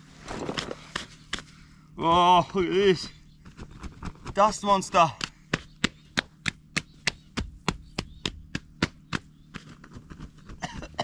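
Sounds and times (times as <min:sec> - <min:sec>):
hands slapping clothing: 0:05.0 - 0:11.0.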